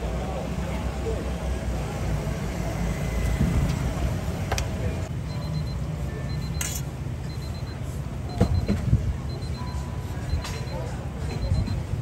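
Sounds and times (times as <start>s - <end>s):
low rumble of food stall: 0.0s - 12.0s
high electronic beep: 5.2s - 12.0s.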